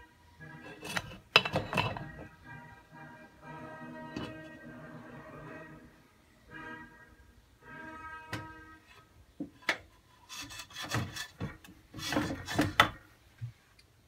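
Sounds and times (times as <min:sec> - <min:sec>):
glass and cloth scraping metal: 0:00.5 - 0:02.3, 0:10.2 - 0:12.8
glass lid clinking: 0:00.6 - 0:02.2.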